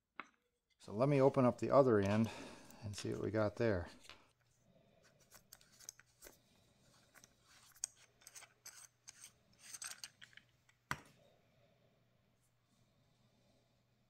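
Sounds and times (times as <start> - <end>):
threads scraping and clicking: 5.1 - 10.4.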